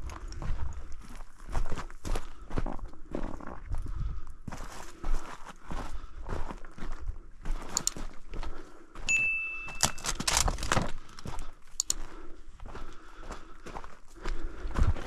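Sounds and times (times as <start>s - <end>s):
footsteps crunching on rough ground: 0.0s - 9.1s, 9.8s - 15.0s
metallic clinks of gear: 9.1s - 10.8s.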